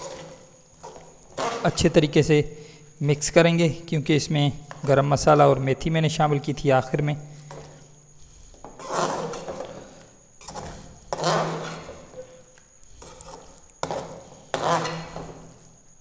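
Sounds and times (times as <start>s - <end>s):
metal spatula scraping a pot: 0.0s - 2.0s, 7.4s - 15.6s.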